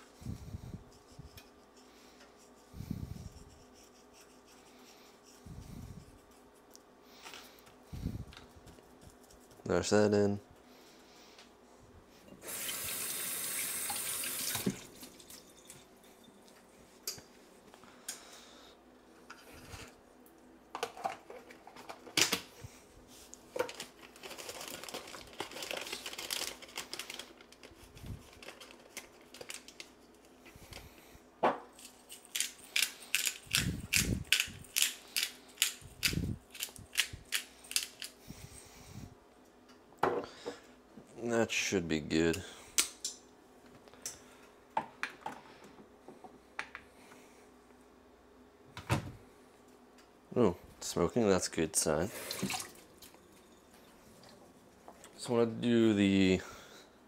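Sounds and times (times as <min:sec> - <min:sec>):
kitchen tap running: 0:12.4 - 0:15.3, 0:52.2 - 0:52.8.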